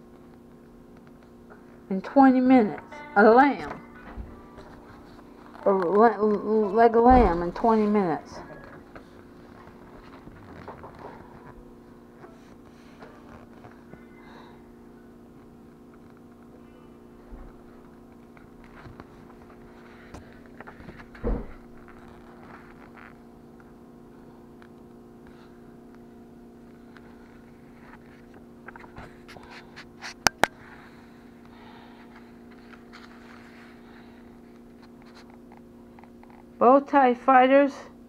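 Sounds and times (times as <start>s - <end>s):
low electrical hum: 0.0s - 38.0s
thump: 21.2s - 21.6s
paper pages rustling: 32.4s - 33.8s.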